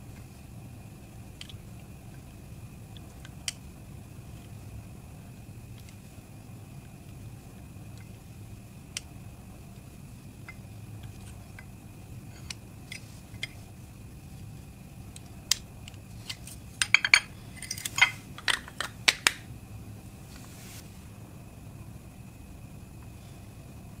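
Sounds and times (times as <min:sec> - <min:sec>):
discs dropping into ceramic bowls: 0:16.8 - 0:19.3.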